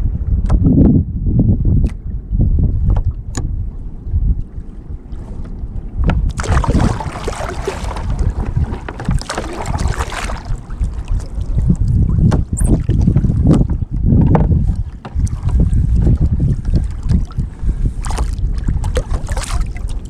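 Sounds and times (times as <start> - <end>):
wind rumble on microphone: 0.0 - 20.0
kayak paddle splashing water: 6.3 - 13.7, 14.6 - 20.0.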